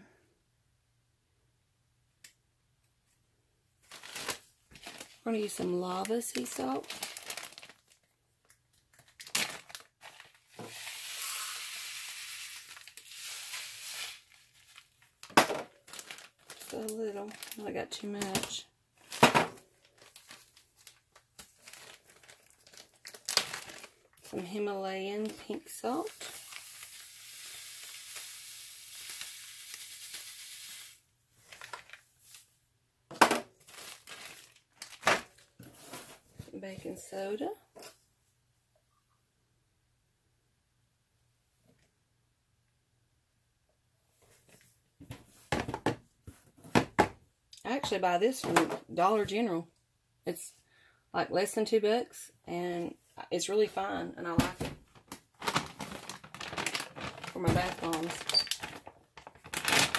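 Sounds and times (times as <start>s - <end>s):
plastic bag crinkling: 3.8s - 8.2s, 8.8s - 30.3s, 31.4s - 32.4s, 33.5s - 36.1s, 54.4s - 59.9s
salt pouring into plastic cup: 10.7s - 14.3s, 26.2s - 31.0s.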